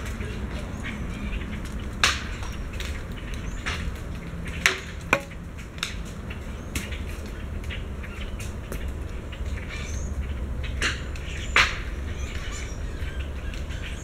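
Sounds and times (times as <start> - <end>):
acorns dropping and knocking: 4.7 - 6.0.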